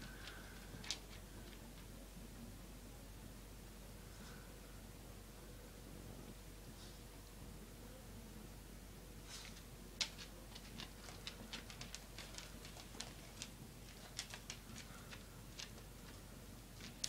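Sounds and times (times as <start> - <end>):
dog claws clicking on concrete: 10.0 - 16.2.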